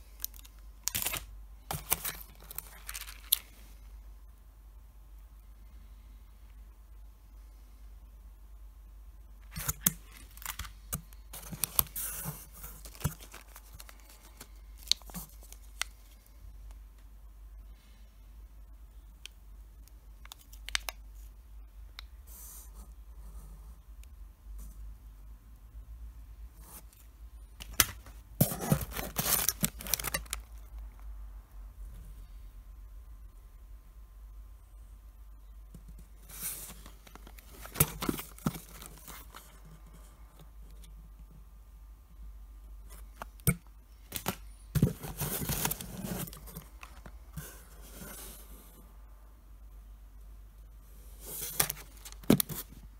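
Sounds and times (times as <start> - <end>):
candy wrapper clicks and crinkles: 0.1 - 3.6
wrapper rustle: 0.1 - 3.6, 9.5 - 16.2, 27.6 - 31.0
boxes rustling and scraping: 11.3 - 15.6, 27.8 - 30.4, 35.9 - 40.2, 44.1 - 48.9, 51.0 - 52.9.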